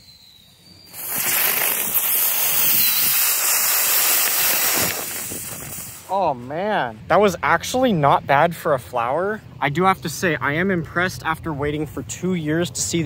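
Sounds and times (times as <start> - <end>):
firework spraying sparks hissing: 0.0 - 6.1.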